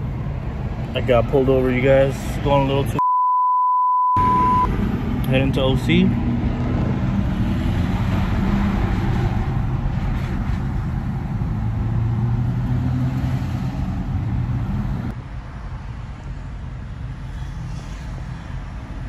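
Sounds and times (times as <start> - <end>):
car engine and road noise droning: 0.0 - 3.0, 4.2 - 19.0.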